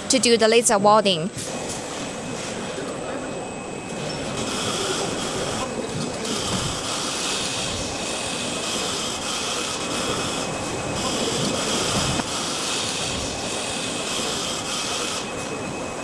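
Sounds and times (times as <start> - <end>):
welding machine steady hiss: 4.4 - 15.7.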